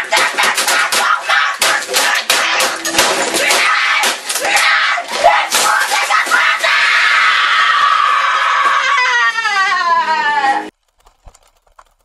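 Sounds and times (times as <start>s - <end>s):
keyboard being smashed: 0.0s - 6.6s
person screaming in rage: 4.4s - 10.7s.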